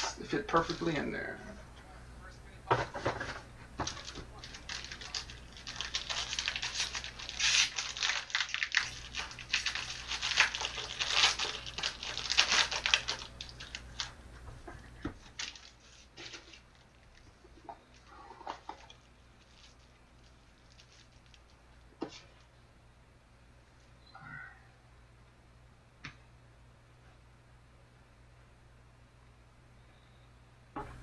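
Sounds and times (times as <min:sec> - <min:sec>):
plastic wrapping crinkling and tearing: 0:03.9 - 0:14.2, 0:14.8 - 0:22.2.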